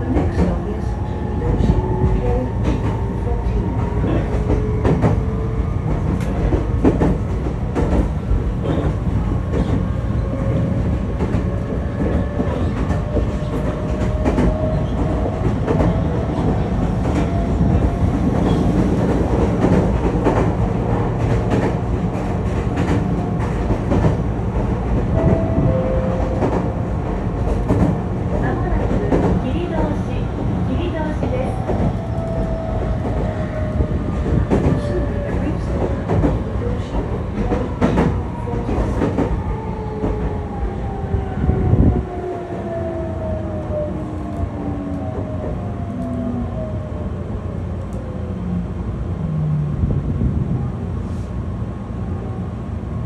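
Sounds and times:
train low rumble: 0.0s - 53.0s.

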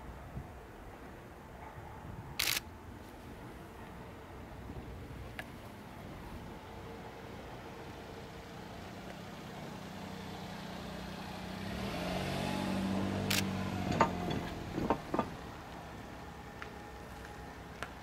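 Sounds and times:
railcar diesel engine passing: 0.0s - 18.0s.

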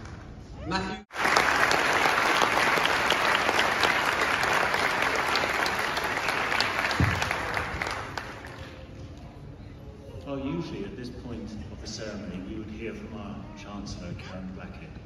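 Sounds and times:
audience applauding: 1.1s - 8.8s.

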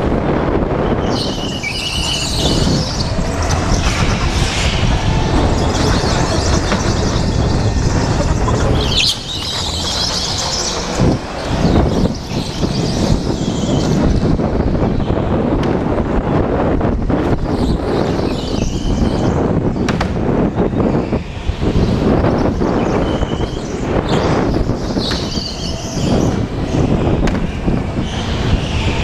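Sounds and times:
wind rumble on microphone: 0.0s - 29.0s
tyres squealing: 1.0s - 13.9s
go-kart engine: 1.2s - 15.8s.

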